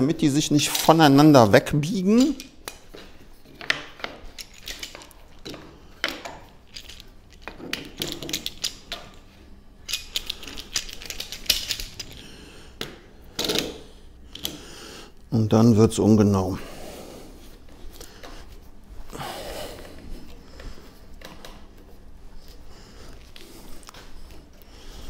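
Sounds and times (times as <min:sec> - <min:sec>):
clamp and wood clicking and rattling: 0:02.2 - 0:09.2, 0:09.9 - 0:12.2.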